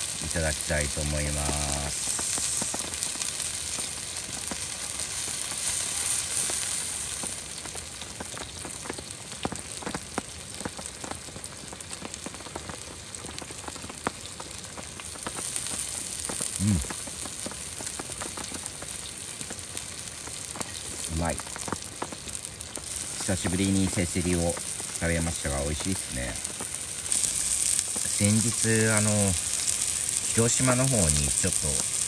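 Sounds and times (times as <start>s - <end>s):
meat sizzling on a griddle: 0.0s - 32.0s
small pops: 1.4s - 10.9s, 25.8s - 32.0s.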